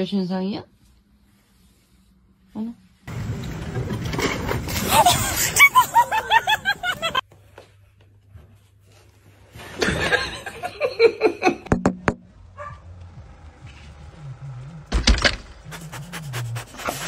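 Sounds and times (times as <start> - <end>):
high-pitched laughter: 4.9 - 7.2.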